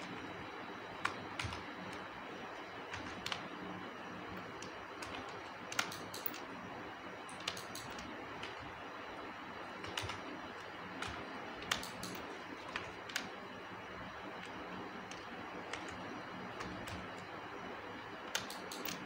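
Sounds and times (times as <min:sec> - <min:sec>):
steady background hiss: 0:00.0 - 0:19.0
keyboard keys clicking: 0:01.0 - 0:02.0, 0:02.9 - 0:03.4, 0:04.4 - 0:06.5, 0:07.3 - 0:08.7, 0:09.8 - 0:13.4, 0:14.4 - 0:17.2, 0:18.2 - 0:19.0.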